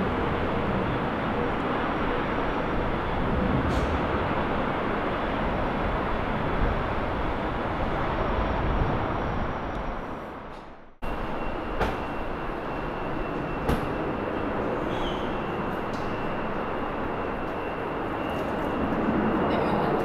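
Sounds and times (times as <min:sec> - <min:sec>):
wind buffeting microphone: 0:00.0 - 0:10.9
jet engines roaring: 0:00.0 - 0:20.0
steady rushing with high whine: 0:00.0 - 0:20.0.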